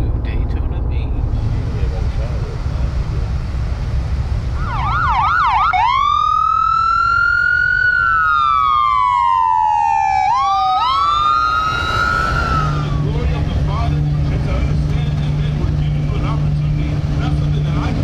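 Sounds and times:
emergency vehicle siren: 0:04.5 - 0:13.6.

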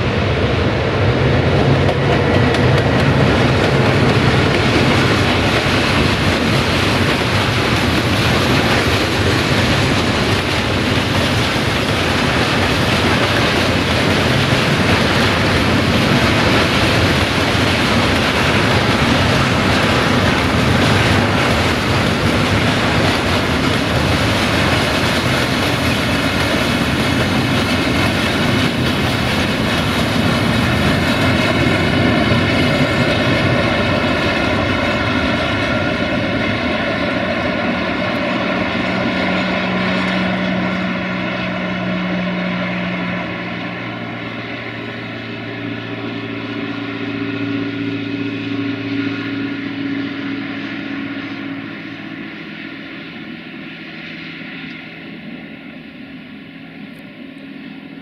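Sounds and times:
freight train wheels rumbling: 0:00.0 - 0:58.0
steady droning hum: 0:13.7 - 0:58.0.

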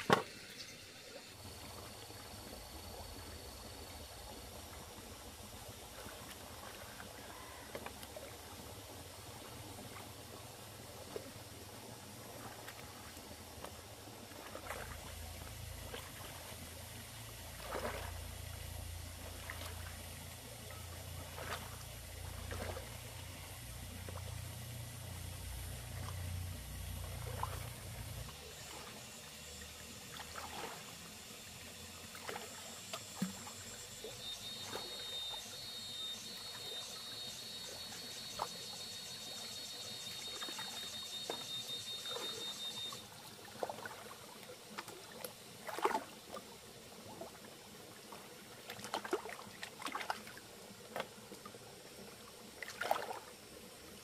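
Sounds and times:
shallow river water splashing: 0:00.0 - 0:54.0
steady high buzz: 0:14.8 - 0:43.2.

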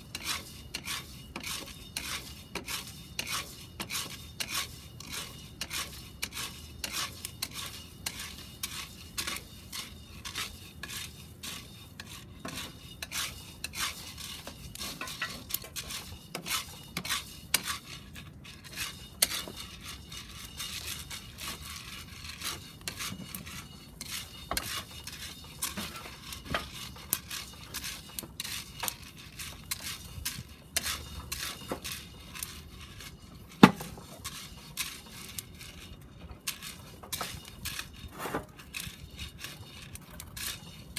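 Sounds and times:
coffee beans rattling in iron pot: 0:00.0 - 0:40.9.

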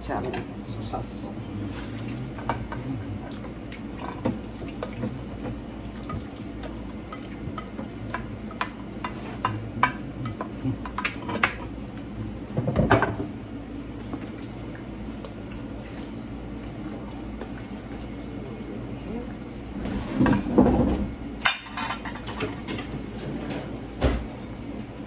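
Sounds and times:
kitchenware clattering: 0:01.8 - 0:11.7, 0:12.5 - 0:13.3, 0:20.0 - 0:24.3.

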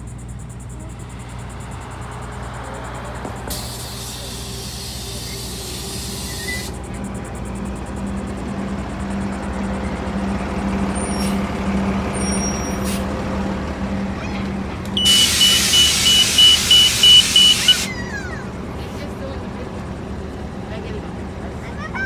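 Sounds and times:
bus engine running: 0:00.0 - 0:22.0
loud air hiss: 0:03.5 - 0:06.8, 0:15.0 - 0:17.9
rapid beeping alarm: 0:15.0 - 0:17.9.

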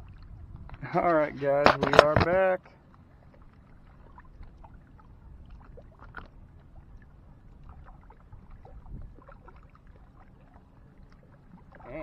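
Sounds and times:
wind rumbling on microphone: 0:00.0 - 0:02.4, 0:03.9 - 0:10.2.

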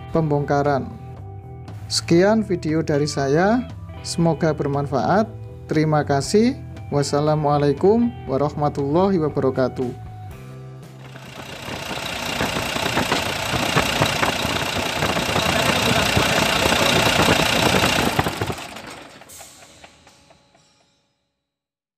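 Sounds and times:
diesel engine clattering: 0:10.9 - 0:20.6.

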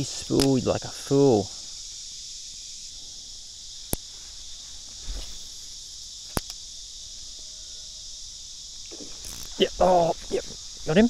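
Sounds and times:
insect chorus: 0:00.0 - 0:11.0
sharp clicks: 0:06.3 - 0:06.6.

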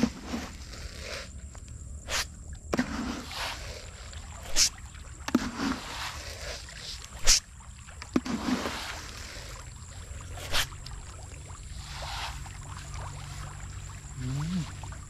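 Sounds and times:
swish of throwing: 0:02.1 - 0:03.8, 0:04.4 - 0:07.5, 0:10.4 - 0:10.8
pellets splashing onto water: 0:02.8 - 0:09.8.

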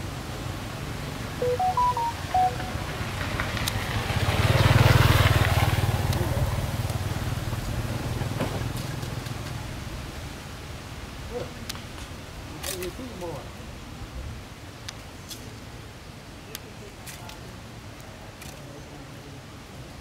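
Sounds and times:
electronic beeps: 0:01.4 - 0:02.8.

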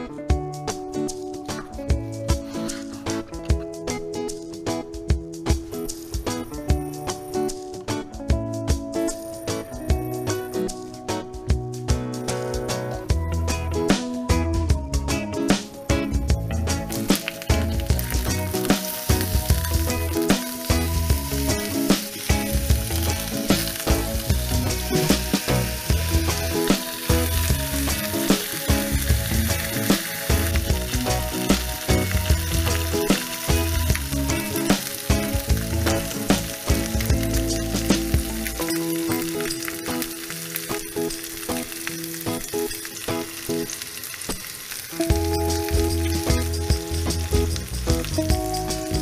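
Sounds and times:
background music with bass: 0:00.0 - 0:42.5, 0:45.0 - 0:49.0
meat sizzling in frying pan: 0:15.6 - 0:49.0
fat popping and crackling: 0:15.9 - 0:48.8.

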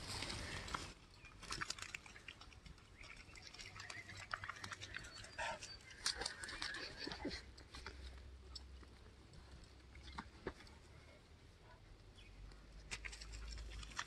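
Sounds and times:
dogs rustling in grass: 0:00.0 - 0:08.0.

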